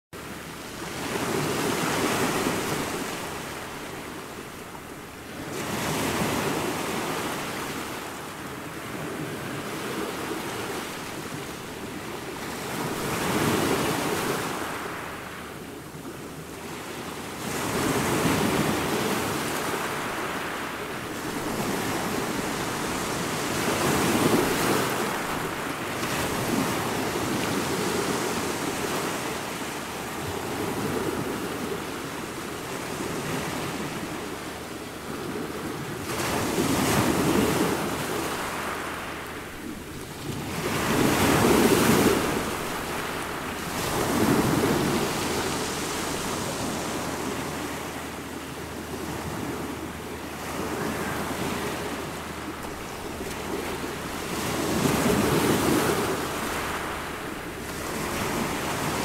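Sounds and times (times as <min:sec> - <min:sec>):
ocean waves breaking: 0:00.2 - 0:59.0.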